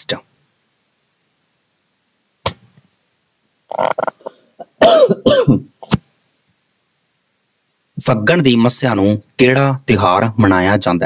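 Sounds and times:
soft throaty sound: 0:03.7 - 0:06.1
man coughing: 0:04.2 - 0:06.0.

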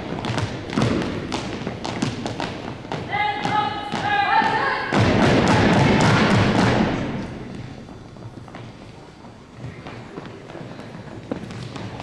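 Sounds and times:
stomps and slaps on gym floor: 0:00.0 - 0:07.6.

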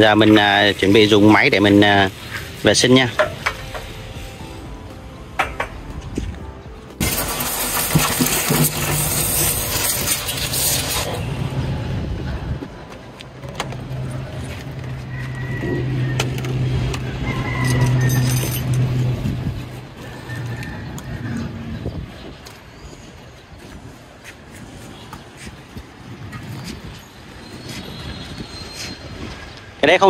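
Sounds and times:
loud hissing rush: 0:07.0 - 0:11.9.

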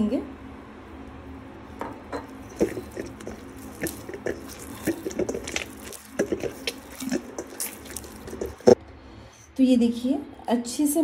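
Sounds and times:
dough kneaded in metal bowl: 0:02.3 - 0:08.8.

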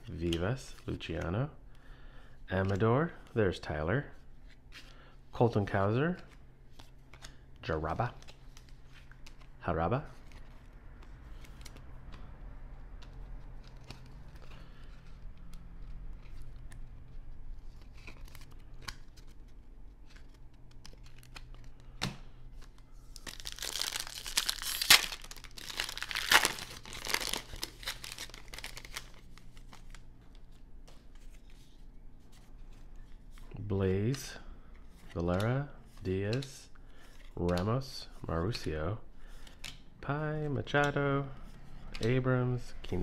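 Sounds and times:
foil wrapper crinkling and tearing: 0:23.2 - 0:29.7.

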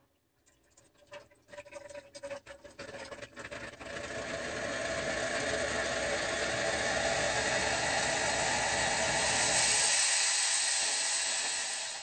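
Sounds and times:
espresso maker steam hissing: 0:04.2 - 0:12.0.

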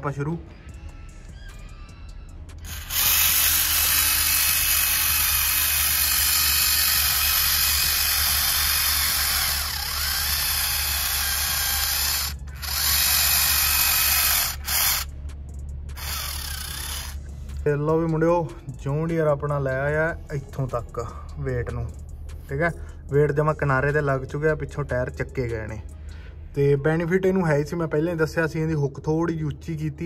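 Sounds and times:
electric motor whining: 0:02.6 - 0:15.1, 0:16.0 - 0:17.2.

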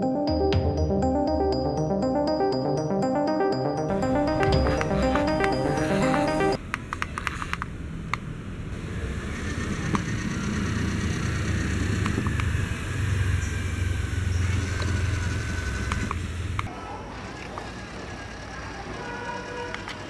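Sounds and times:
toy car motor whirring: 0:17.4 - 0:20.0.

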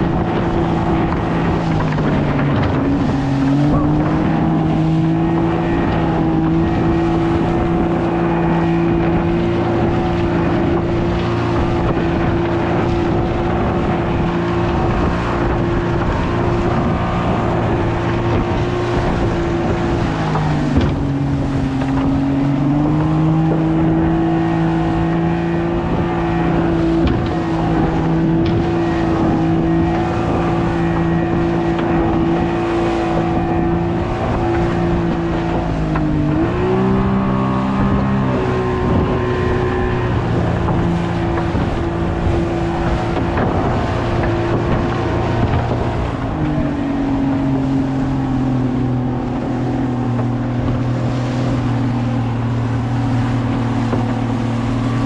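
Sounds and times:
outboard motor running hard: 0:00.0 - 0:55.0
water rushing along hull: 0:00.0 - 0:55.0.

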